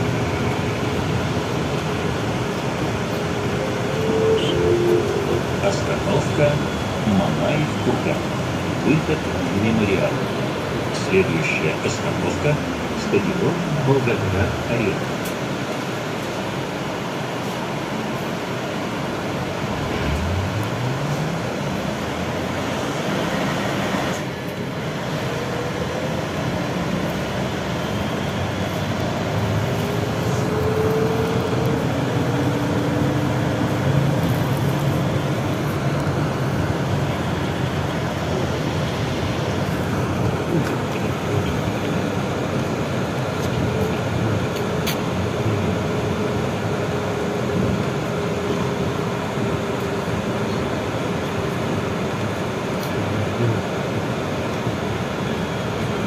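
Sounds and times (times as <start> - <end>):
tyres rumbling on road: 0.0 - 56.0
faint tones: 3.4 - 7.2.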